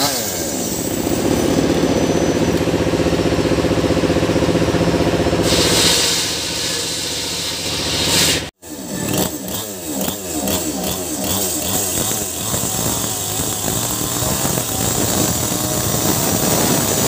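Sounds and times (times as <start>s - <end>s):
chainsaw cutting wood: 0.0s - 1.9s, 8.7s - 17.0s
chainsaw engine revving: 0.0s - 3.2s, 8.6s - 17.0s.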